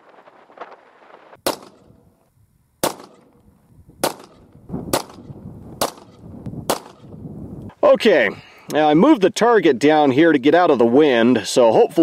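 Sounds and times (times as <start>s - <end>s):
pistol shots: 1.4s - 2.0s, 2.8s - 3.3s, 4.0s - 7.1s.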